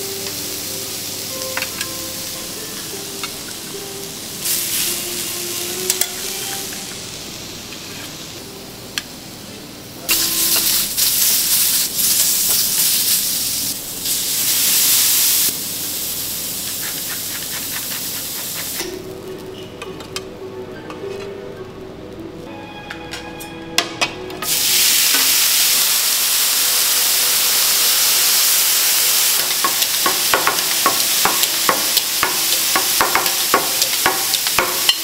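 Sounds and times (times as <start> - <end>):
food sizzling on a griddle: 0.0 - 19.1, 24.4 - 35.0
metal utensils clicking: 29.4 - 35.0.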